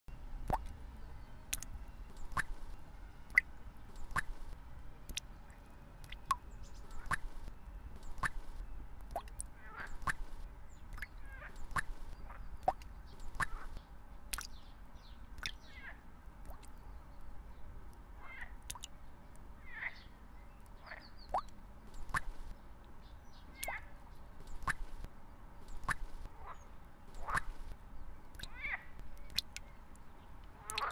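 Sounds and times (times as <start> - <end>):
low steady rumble: 0.1 - 30.9
bird ticks: 1.5 - 5.3, 6.0 - 14.6, 15.4 - 15.6, 20.6 - 23.0, 24.4 - 26.3, 27.2 - 30.9
bird chirps: 6.1 - 17.7, 19.6 - 25.0.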